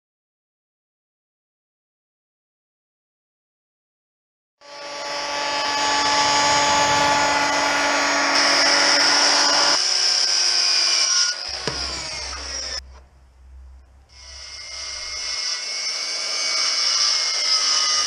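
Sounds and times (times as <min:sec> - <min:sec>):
circular saw cutting wood: 0:04.6 - 0:12.8, 0:14.1 - 0:18.0.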